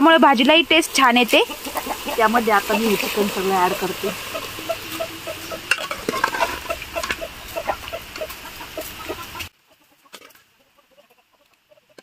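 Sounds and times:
hens clucking: 0:00.8 - 0:12.0
ladle clinking against pots: 0:03.7 - 0:08.4.

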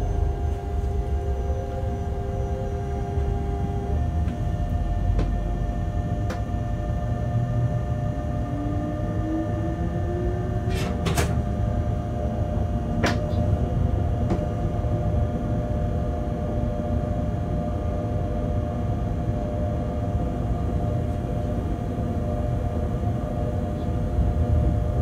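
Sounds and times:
rising whine: 0:00.0 - 0:10.7
locomotive low rumble: 0:00.0 - 0:25.0
motor hum: 0:00.0 - 0:25.0.

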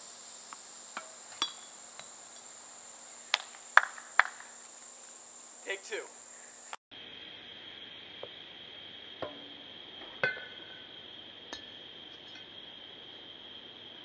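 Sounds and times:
insects droning: 0:00.0 - 0:14.0
tennis ball hits: 0:03.3 - 0:04.5.

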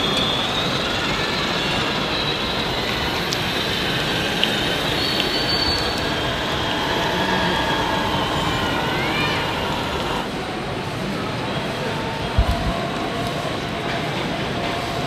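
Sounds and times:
toy crane drive whining: 0:00.0 - 0:10.4
dense even rumble: 0:12.3 - 0:12.9.

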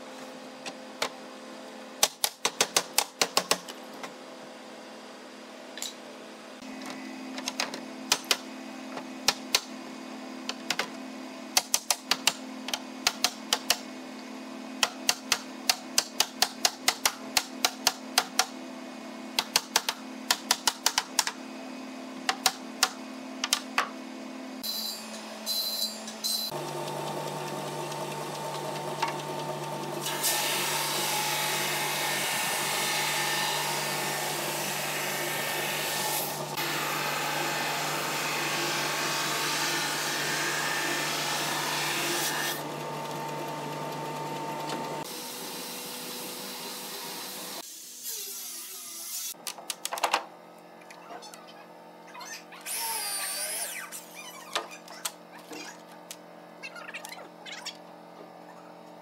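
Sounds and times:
belt sander running with hiss: 0:26.5 - 0:47.9.

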